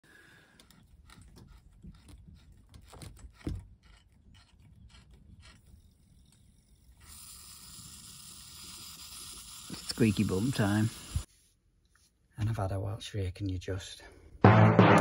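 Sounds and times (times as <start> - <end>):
hand tool scraping a pipe fitting: 0.6 - 6.4
loud knock: 14.4 - 15.0.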